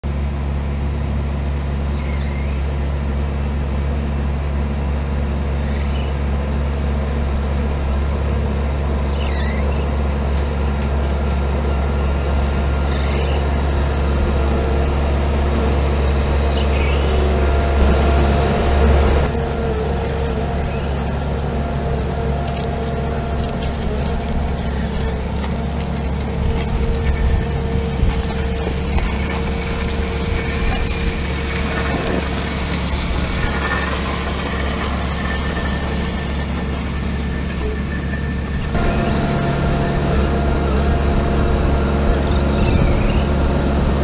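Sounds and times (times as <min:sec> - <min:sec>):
tractor diesel engine running: 0:00.0 - 0:44.0
faint short squeak: 0:01.8 - 0:02.7, 0:05.6 - 0:06.2, 0:09.0 - 0:10.2, 0:12.9 - 0:13.6, 0:16.4 - 0:18.3, 0:20.1 - 0:21.2, 0:42.3 - 0:43.4.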